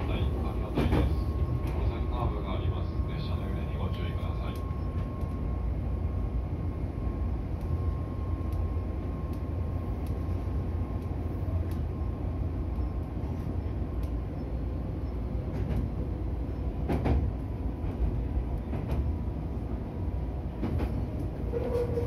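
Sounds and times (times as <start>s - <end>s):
train wheels rumbling: 0.0s - 22.0s
light ticks: 8.5s - 8.7s, 9.3s - 10.2s, 11.0s - 11.9s, 14.0s - 14.2s.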